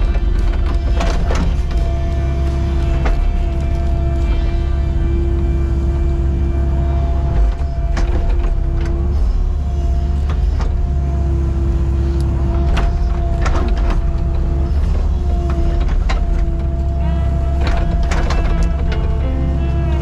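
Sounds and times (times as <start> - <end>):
excavator engine with hydraulic whine: 0.0 - 20.0.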